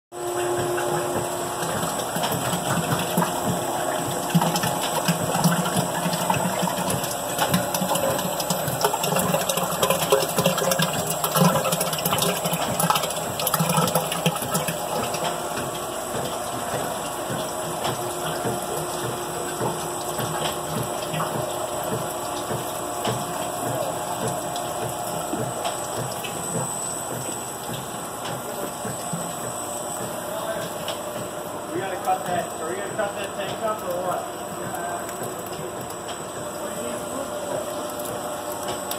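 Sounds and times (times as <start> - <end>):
water draining: 0.3 - 31.3.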